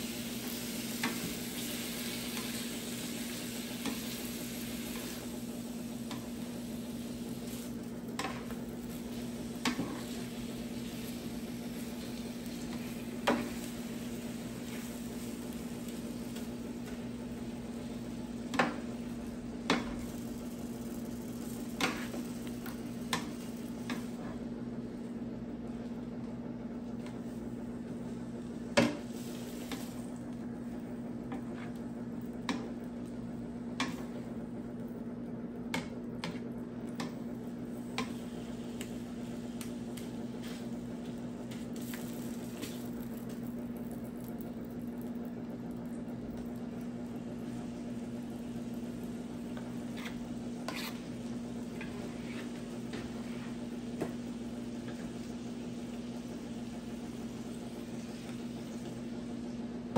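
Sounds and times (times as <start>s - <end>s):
food sizzling on a griddle: 0.0s - 24.4s, 28.8s - 30.2s, 37.7s - 45.6s, 46.4s - 59.0s.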